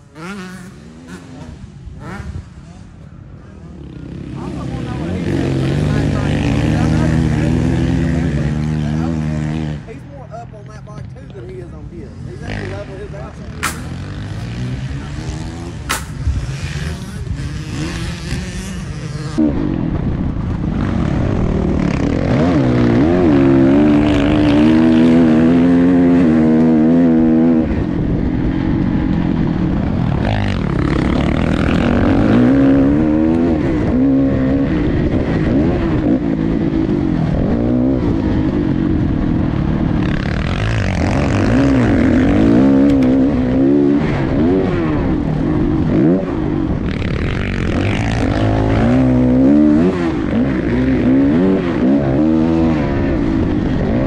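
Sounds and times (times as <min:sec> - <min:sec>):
motocross bike engine revving: 0:00.0 - 0:03.0, 0:03.7 - 0:10.1, 0:12.1 - 0:19.9, 0:20.6 - 0:54.0.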